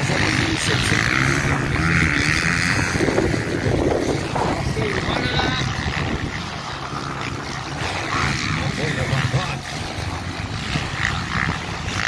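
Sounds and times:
motocross bike engines revving: 0.0s - 12.0s
voices of people: 8.0s - 11.5s.

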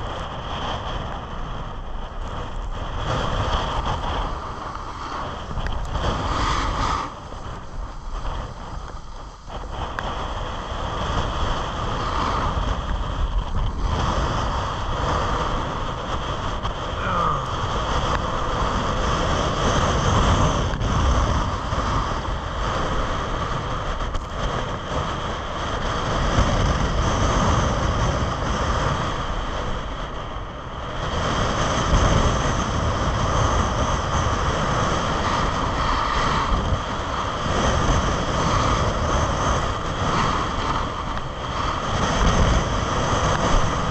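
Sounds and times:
skis scraping on snow: 0.0s - 16.9s, 30.8s - 43.9s
wind rushing over microphone: 0.0s - 43.9s.

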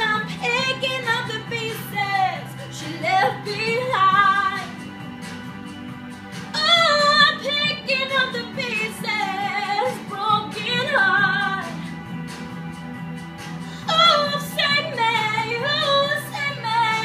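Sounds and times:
woman singing with vibrato: 0.0s - 4.9s, 6.5s - 11.9s, 13.8s - 17.0s
backing track: 0.0s - 17.0s.

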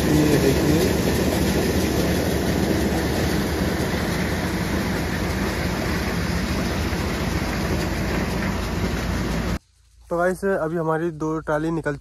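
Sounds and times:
thresher rushing noise: 0.0s - 9.6s
tractor engine: 0.0s - 11.9s.

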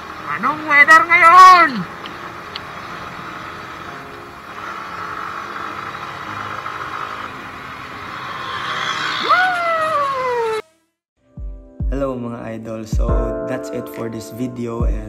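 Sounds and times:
road and wind noise: 0.0s - 10.6s
motorcycle engine running: 1.9s - 8.8s.

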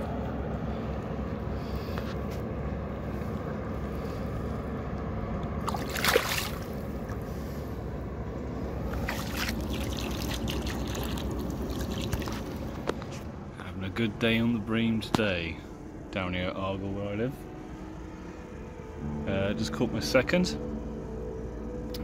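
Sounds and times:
steady low rumble: 0.0s - 22.0s
shallow water splashing: 5.6s - 7.4s, 8.9s - 12.8s.

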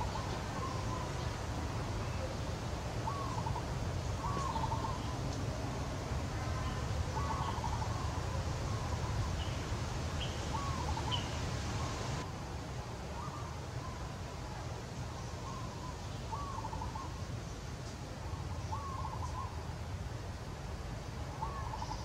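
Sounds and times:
bird calling: 0.0s - 5.5s, 6.3s - 12.3s, 15.2s - 17.2s, 18.7s - 19.6s, 21.4s - 22.0s.

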